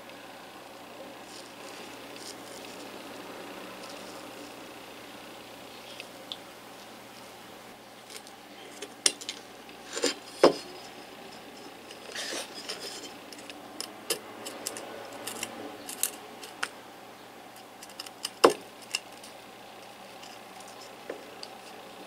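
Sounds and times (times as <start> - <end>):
metal pick scraping: 8.2 - 16.7.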